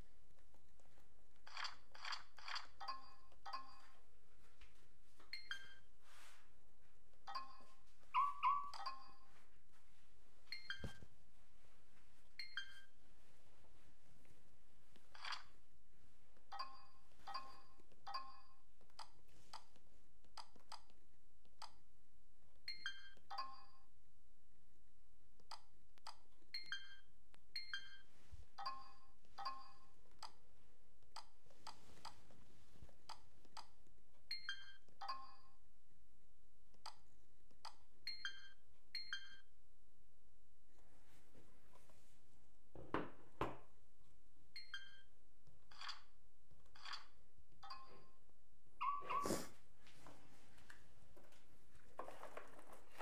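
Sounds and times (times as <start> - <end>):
short electronic beeps: 5.3 - 5.9, 10.5 - 11.0, 12.4 - 13.0, 38.1 - 39.5, 44.6 - 45.1.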